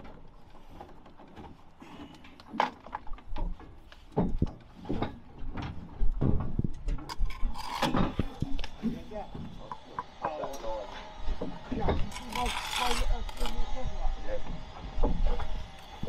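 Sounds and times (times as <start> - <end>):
trowel scraping mortar: 7.1 - 8.7, 11.8 - 13.8.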